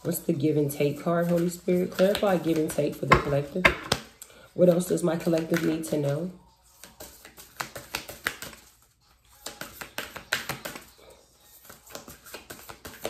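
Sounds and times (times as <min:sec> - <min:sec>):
cards being shuffled: 0:06.7 - 0:10.9, 0:11.5 - 0:13.0.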